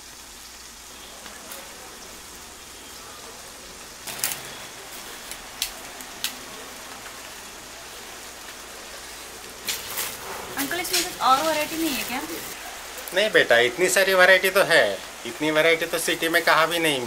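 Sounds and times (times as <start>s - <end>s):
rain hissing: 0.0s - 17.0s
umbrella rustling: 9.6s - 12.7s.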